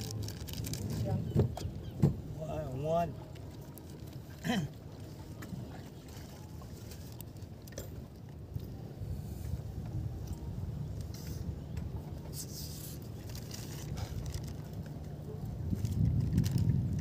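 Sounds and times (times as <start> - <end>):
wind rumble on microphone: 8.4 - 17.0
light scrapes rubs and clicks: 11.0 - 11.6, 12.2 - 14.9.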